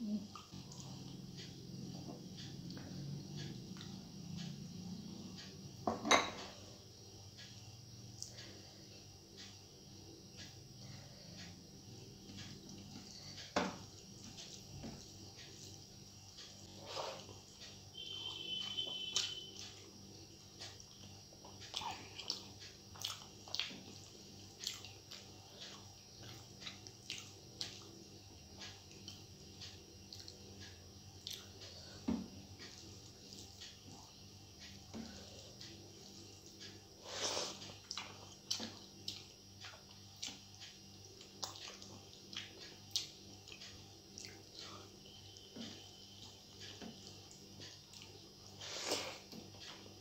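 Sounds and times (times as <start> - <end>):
faint low hum: 0.0 - 50.0
wet chewing clicks and squishes: 20.6 - 31.7, 37.6 - 48.2.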